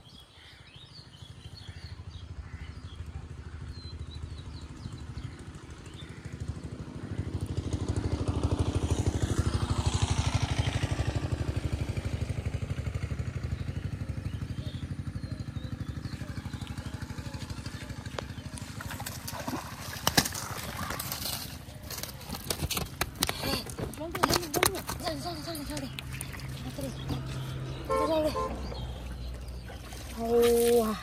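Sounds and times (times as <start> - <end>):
small vehicle engine passing by: 0.4 - 21.8, 25.3 - 29.8
sharp splashes or knocks: 18.8 - 21.6.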